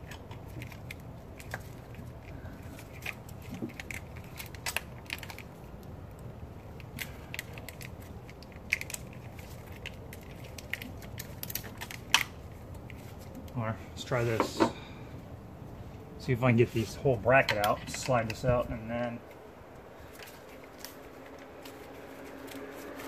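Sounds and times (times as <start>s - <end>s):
wiring harness clicking and rattling: 0.0s - 13.6s
low steady hum: 0.0s - 23.0s.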